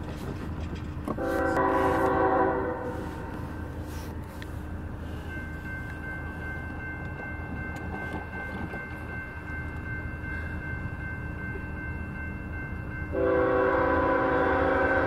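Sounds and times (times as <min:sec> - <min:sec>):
locomotive air horn blowing: 0:01.2 - 0:04.0, 0:13.1 - 0:15.0
crossing warning bell ringing: 0:01.2 - 0:15.0.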